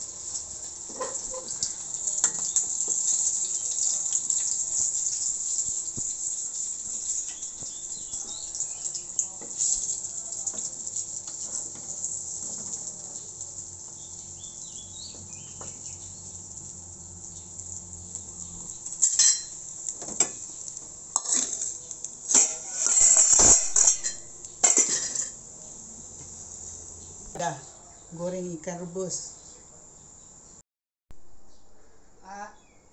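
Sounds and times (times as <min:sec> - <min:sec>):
fish frying in oil: 0:00.0 - 0:27.3
metal spatula scraping wok: 0:00.1 - 0:13.1, 0:18.8 - 0:25.4
spatula clattering on wok: 0:00.3 - 0:12.9, 0:18.9 - 0:25.4.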